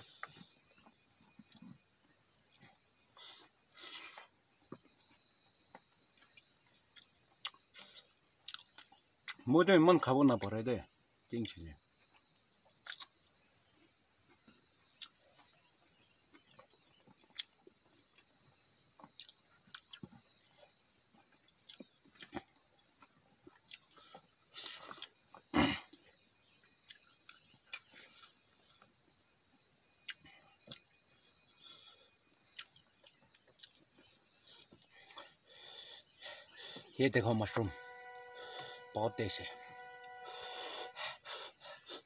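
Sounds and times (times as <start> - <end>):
insects chirring in pulsing trill: 0.0 - 42.0
people eating by hand: 14.2 - 29.1, 30.0 - 42.0.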